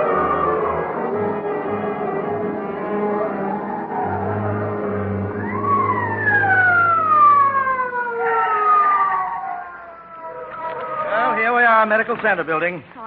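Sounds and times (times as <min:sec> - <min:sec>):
low hum: 0:00.0 - 0:11.3
police siren: 0:00.0 - 0:12.0.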